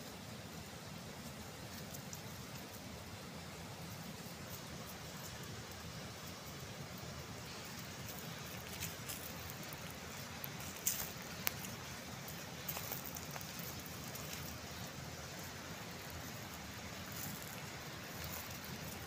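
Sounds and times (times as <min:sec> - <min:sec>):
mountain river rushing: 0:00.0 - 0:19.0
sharp crackles and clicks: 0:08.0 - 0:14.6.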